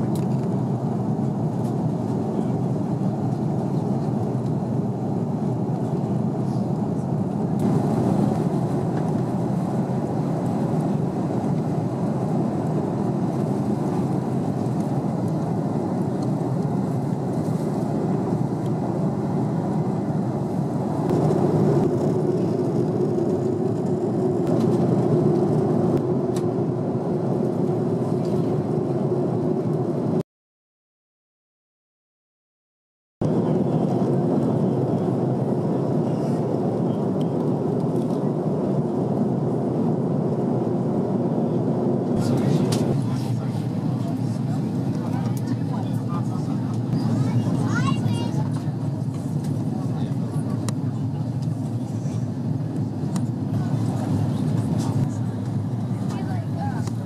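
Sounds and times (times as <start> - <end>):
airplane cabin engine roar: 0.0 - 30.2, 33.2 - 57.0
steady hum: 4.7 - 30.2.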